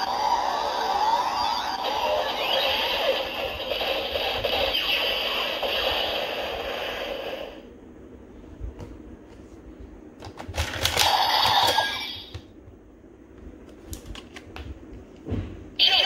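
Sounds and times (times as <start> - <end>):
toy belt electronic audio: 0.0 - 7.6.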